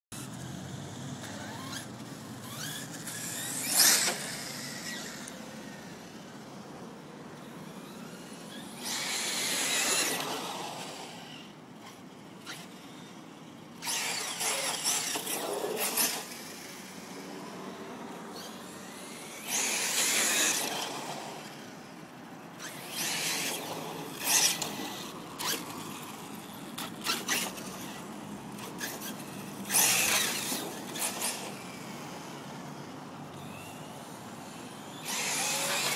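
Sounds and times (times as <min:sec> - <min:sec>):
electric motor whining: 0:01.2 - 0:06.1, 0:07.4 - 0:13.1, 0:13.8 - 0:21.8, 0:22.5 - 0:32.4, 0:33.3 - 0:35.9.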